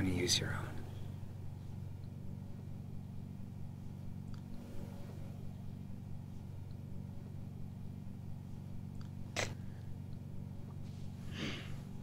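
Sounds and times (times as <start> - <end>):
low hum: 0.0 - 12.0
person sniffing: 11.1 - 11.9
long inhale: 11.1 - 12.0.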